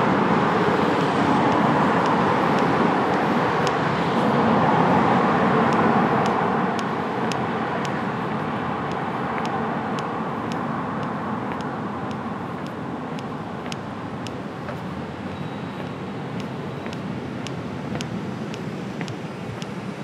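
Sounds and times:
street traffic: 0.0 - 20.0
footsteps on pavement: 12.6 - 19.8.

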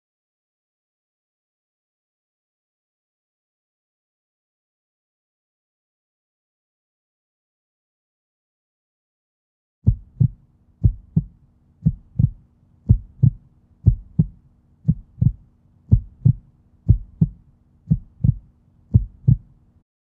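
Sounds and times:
heartbeat thumps: 9.9 - 19.6
faint low hum: 9.9 - 19.8.

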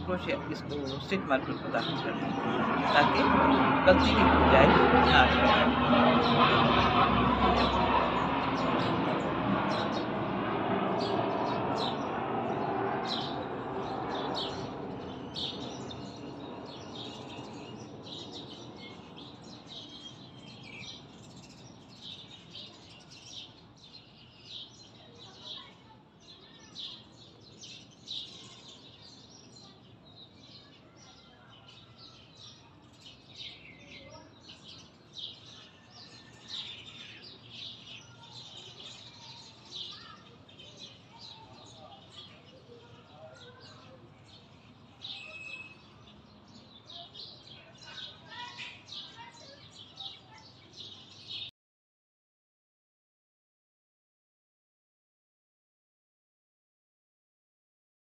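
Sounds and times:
small birds chirping: 0.0 - 10.3, 10.9 - 51.5.

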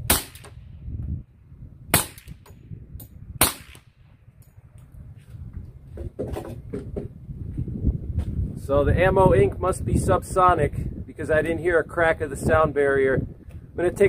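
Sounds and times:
suppressed pistol shots: 0.0 - 0.6, 1.9 - 2.5, 3.4 - 4.0.

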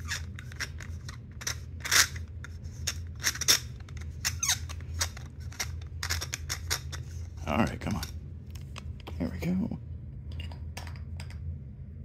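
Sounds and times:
metal screw threads squeaking: 0.0 - 7.2.

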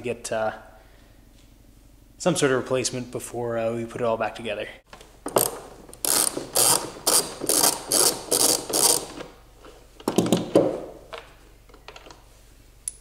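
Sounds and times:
ratchet wrench clicking: 5.4 - 9.2.

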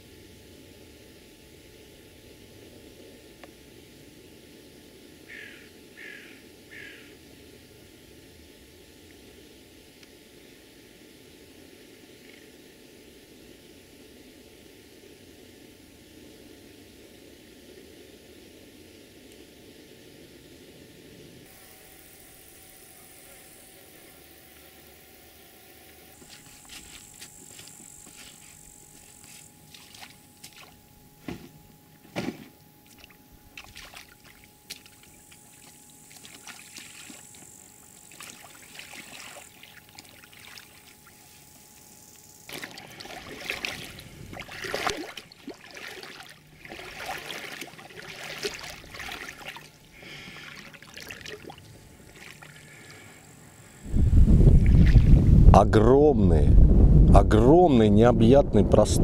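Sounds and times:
high steady hiss: 0.0 - 59.0
water splashing around a boat: 26.2 - 30.8, 32.2 - 41.6, 42.5 - 53.0.

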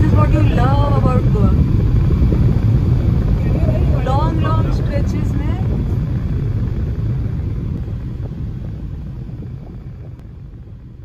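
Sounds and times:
car road and wind rumble: 0.0 - 11.0.

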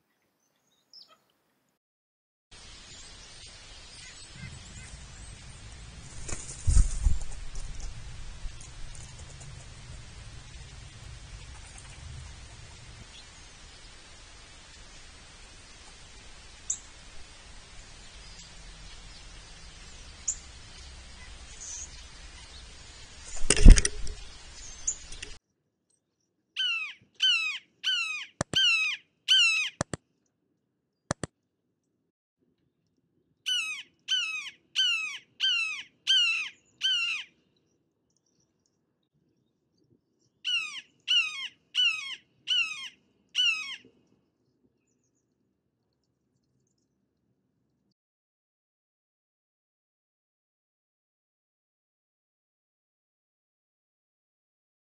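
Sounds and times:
steady hiss: 2.5 - 25.4.

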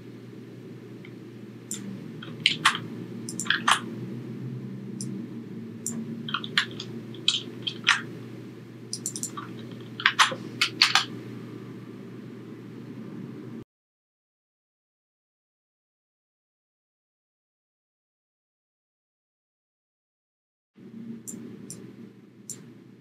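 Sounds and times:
steady low hum: 0.0 - 13.6, 20.8 - 23.0
keyboard key clicks: 1.7 - 3.8, 9.0 - 11.1.

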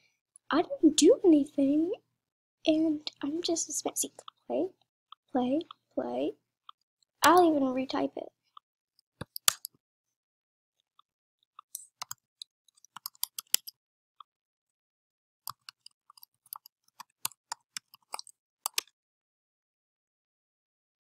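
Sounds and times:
computer keyboard typing: 11.7 - 13.7, 15.5 - 18.9.

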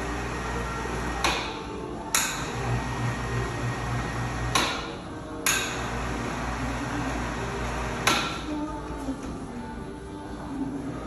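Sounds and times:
hoist motor hum: 0.0 - 8.5.

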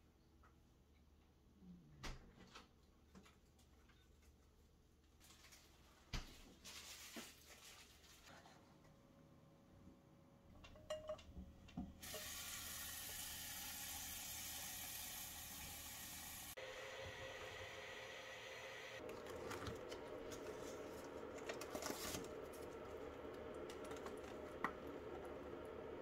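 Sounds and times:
faucet running water into saucepan: 12.0 - 19.0.

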